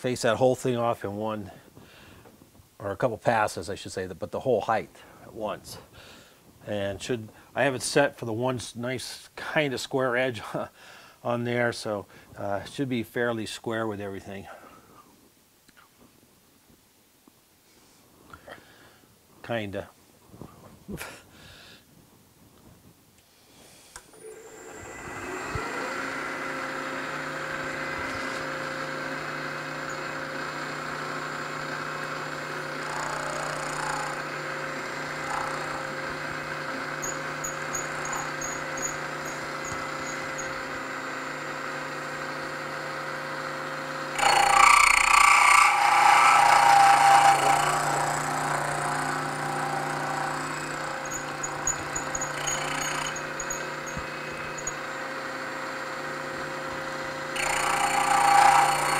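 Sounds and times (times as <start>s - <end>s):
milling machine spindle running: 24.2s - 58.9s
rough metal cutting noise: 24.2s - 58.9s.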